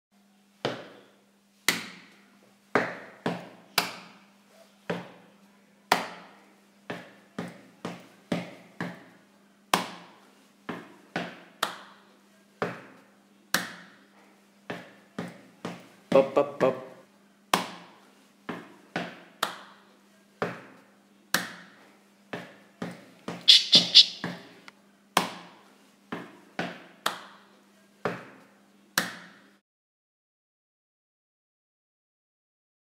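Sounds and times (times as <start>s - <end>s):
hand and shoe slaps and taps: 1.7s - 2.0s, 9.7s - 10.1s.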